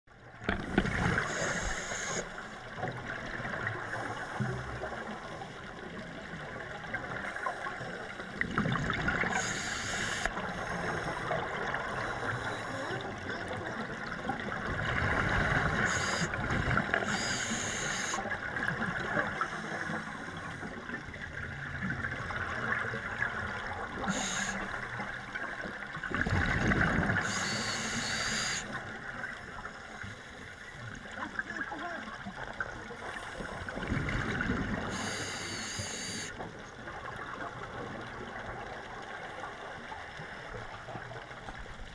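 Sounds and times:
muffled water hiss: 0.1 - 41.9
exhaled bubbles underwater: 0.2 - 29.9, 30.8 - 41.9
regulator hissing inhale: 1.2 - 2.5, 3.8 - 5.7, 9.3 - 13.0, 15.3 - 16.4, 17.0 - 18.2, 19.4 - 20.8, 24.1 - 24.8, 27.2 - 28.8, 34.9 - 36.4.

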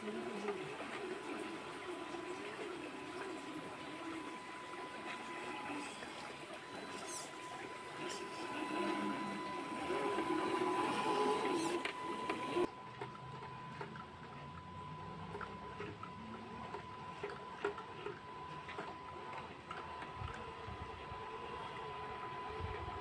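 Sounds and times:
electric motor whirring: 0.0 - 12.7
faint hum: 0.0 - 23.0.

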